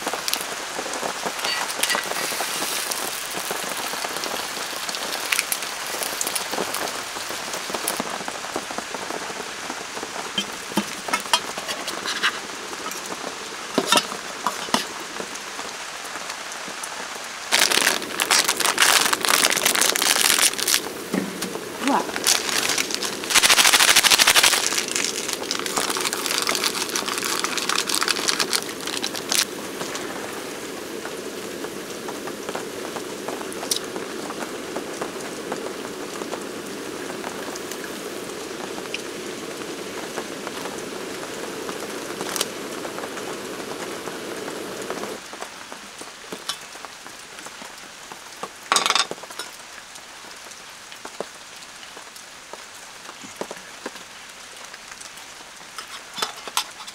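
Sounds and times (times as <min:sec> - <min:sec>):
broth boiling: 0:00.0 - 0:15.8, 0:17.4 - 0:45.3
steady rain: 0:00.0 - 0:56.9
utensils clinking against pan: 0:01.4 - 0:02.4, 0:55.8 - 0:56.9.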